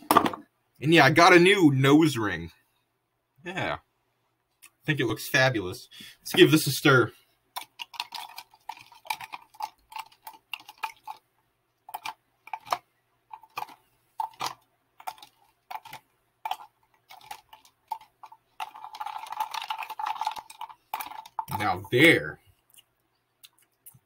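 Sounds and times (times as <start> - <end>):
ice cubes clinking in plastic cup: 7.6 - 11.2, 11.9 - 21.9.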